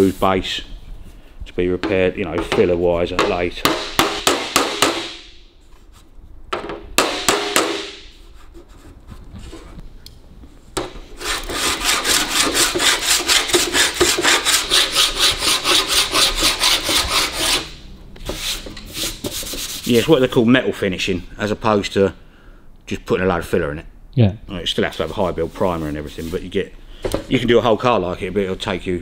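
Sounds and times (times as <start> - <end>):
file rasping on metal: 11.2 - 17.8.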